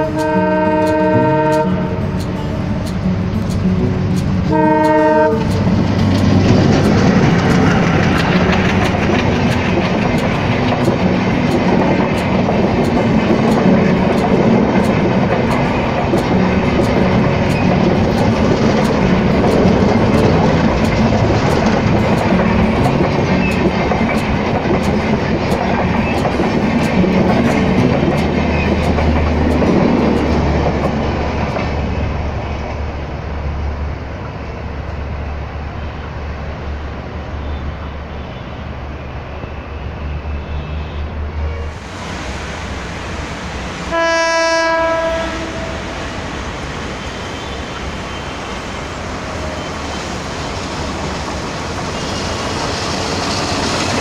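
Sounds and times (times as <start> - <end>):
train horn: 0.0 - 2.6, 4.5 - 5.8, 43.7 - 46.3
train wheels clickety-clack: 0.0 - 33.0, 43.9 - 54.0.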